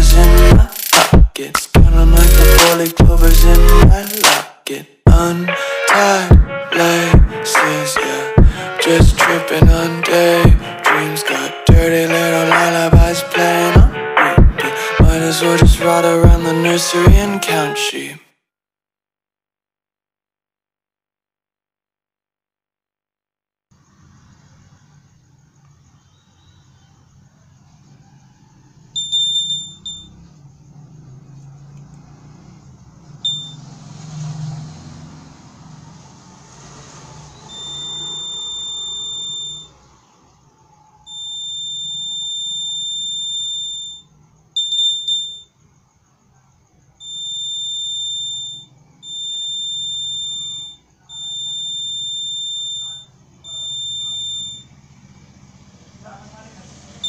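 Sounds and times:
piezo buzzer high-pitched tone: 0.0s - 1.0s, 1.8s - 4.1s, 29.0s - 30.3s, 33.2s - 33.7s, 37.3s - 39.8s, 41.1s - 45.6s, 47.0s - 54.8s.

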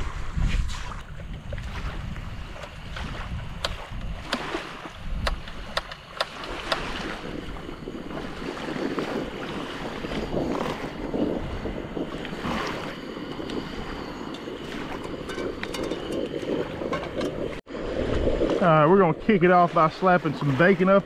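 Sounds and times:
small waves washing on shore: 0.0s - 21.0s
wind buffeting microphone: 0.0s - 21.0s
camp stove clicks and clacks: 5.2s - 6.9s, 14.3s - 17.5s.

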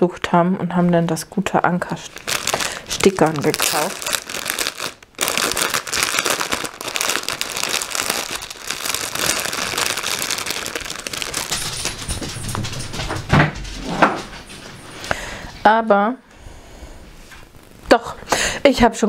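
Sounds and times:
plastic bag crinkling: 1.8s - 12.8s.

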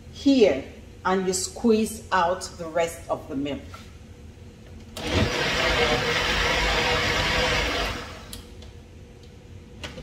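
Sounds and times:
blender running: 5.0s - 8.3s.

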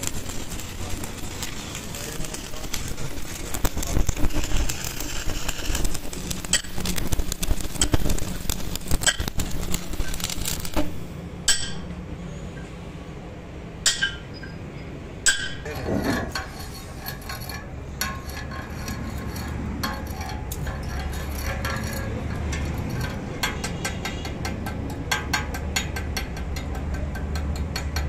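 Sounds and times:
welding arc crackling: 0.0s - 11.9s, 15.3s - 28.0s
sharp metallic clink: 11.4s - 12.0s.

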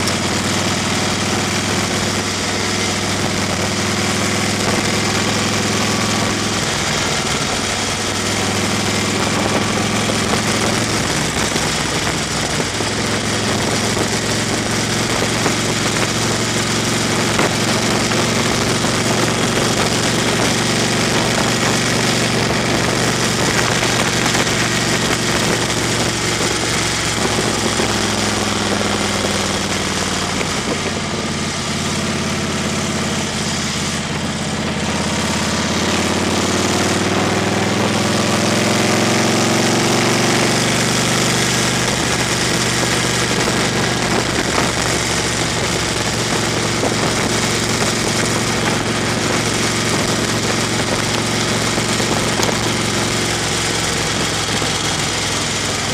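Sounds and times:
car engine hum: 0.0s - 55.9s
tyre noise on gravel: 5.8s - 31.6s.

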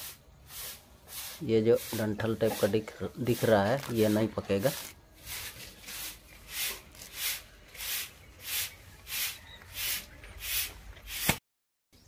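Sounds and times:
leaves plucked with rustling tear: 3.6s - 5.6s.

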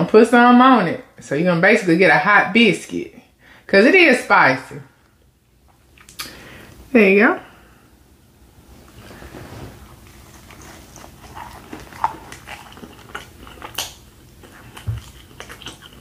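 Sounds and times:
person biting and chewing: 10.0s - 16.0s.

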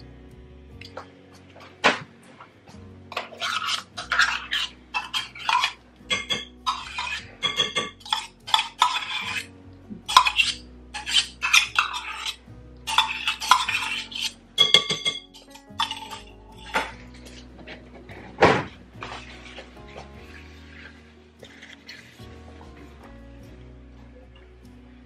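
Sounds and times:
metal spoon scraping a cup: 3.2s - 9.5s, 10.1s - 17.8s
spoon clinks: 10.1s - 17.0s.

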